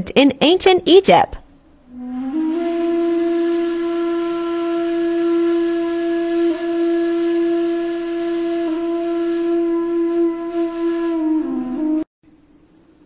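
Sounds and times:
wind instrument holding reedy note: 1.8 - 12.1.

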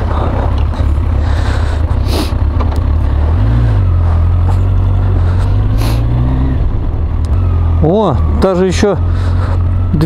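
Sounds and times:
motorcycle engine rumbling: 0.0 - 10.0.

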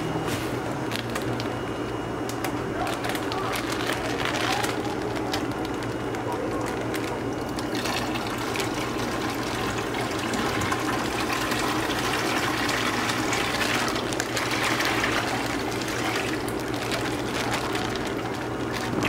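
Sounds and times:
water trickling into a bucket: 7.3 - 19.0.

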